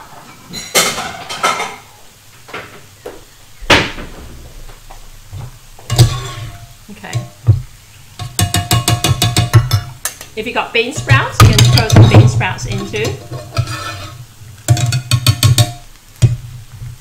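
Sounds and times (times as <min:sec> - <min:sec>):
ceramic bowls clattering: 0:10.9 - 0:15.8.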